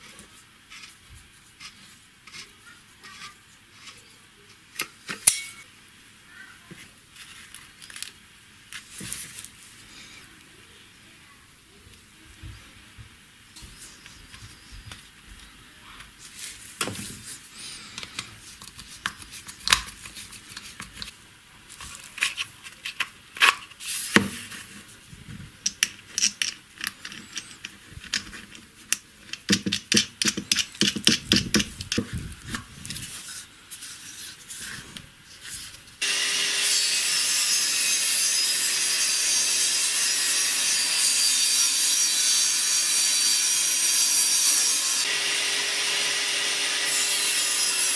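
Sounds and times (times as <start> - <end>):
table saw running: 36.0 - 47.9.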